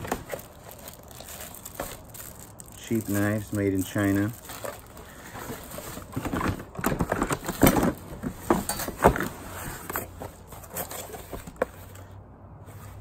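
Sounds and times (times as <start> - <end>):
plastic bags crinkling: 0.0 - 9.2
objects knocking and clattering: 4.5 - 11.8.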